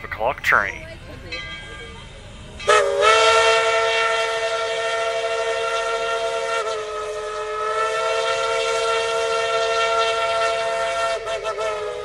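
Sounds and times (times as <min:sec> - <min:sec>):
steam locomotive whistle blast: 0:02.6 - 0:12.0.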